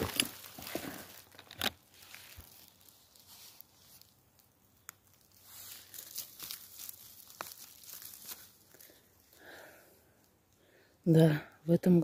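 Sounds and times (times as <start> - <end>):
twig snapping: 0.0 - 9.4
rustling of vegetation and twigs: 0.0 - 12.0.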